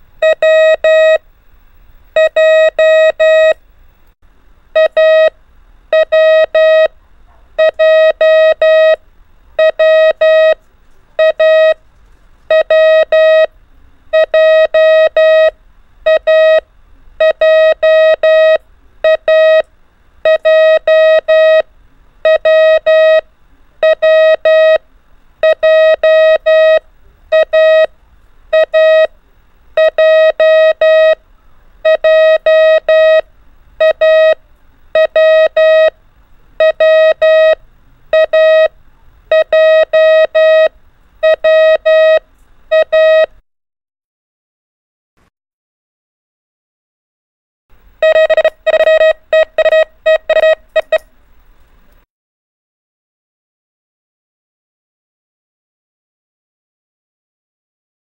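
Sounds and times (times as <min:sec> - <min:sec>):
morse code beeps: 0:00.2 - 0:01.2, 0:02.2 - 0:03.6, 0:04.8 - 0:05.3, 0:05.9 - 0:06.9, 0:07.6 - 0:09.0, 0:09.6 - 0:10.6, 0:11.2 - 0:11.8, 0:12.5 - 0:13.5, 0:14.1 - 0:15.5, 0:16.1 - 0:16.6, 0:17.2 - 0:21.6, 0:22.2 - 0:23.2, 0:23.8 - 0:24.8, 0:25.4 - 0:27.9, 0:28.5 - 0:29.2, 0:29.8 - 0:31.2, 0:31.8 - 0:33.2, 0:33.8 - 0:34.4, 0:35.0 - 0:36.0, 0:36.6 - 0:38.7, 0:39.3 - 0:43.4, 0:48.0 - 0:51.1.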